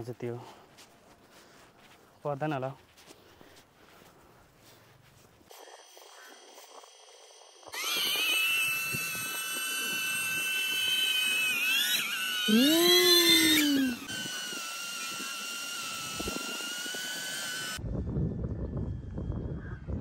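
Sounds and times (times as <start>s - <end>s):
drone propellers whining: 5.5s - 17.8s.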